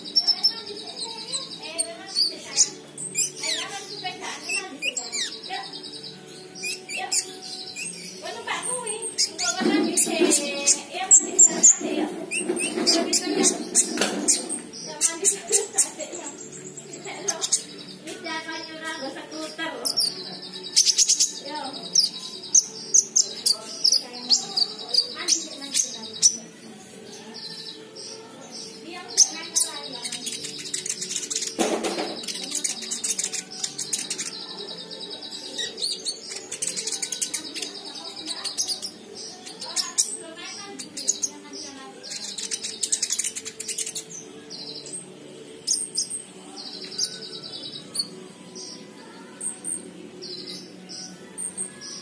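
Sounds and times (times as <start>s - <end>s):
bird chirping: 0.0s - 52.0s.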